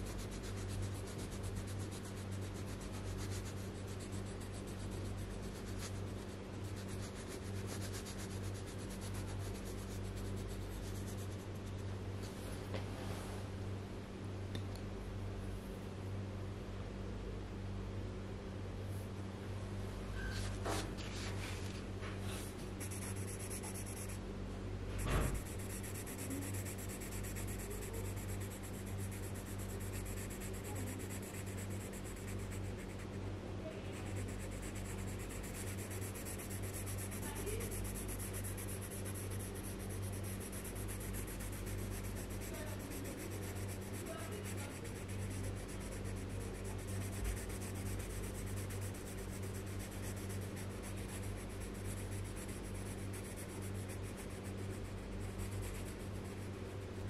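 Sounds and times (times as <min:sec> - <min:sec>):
pencil scratching on paper: 0:00.0 - 0:11.9, 0:22.8 - 0:24.2, 0:25.0 - 0:57.0
steady low hum: 0:00.0 - 0:57.0.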